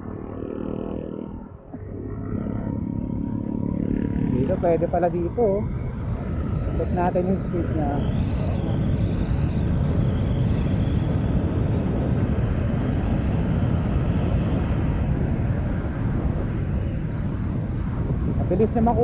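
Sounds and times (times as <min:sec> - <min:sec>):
scooter engine at full throttle: 0:00.0 - 0:08.8
wind rush on microphone: 0:00.0 - 0:19.0.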